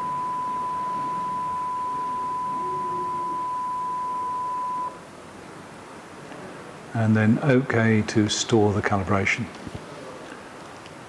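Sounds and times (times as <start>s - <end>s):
loudspeaker playing a pure tone: 0.0s - 5.0s.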